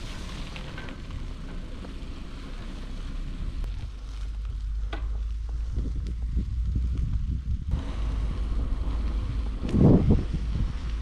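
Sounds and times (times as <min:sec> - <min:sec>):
tyres rolling on rough track: 0:00.0 - 0:11.0
wind buffeting microphone: 0:03.5 - 0:11.0.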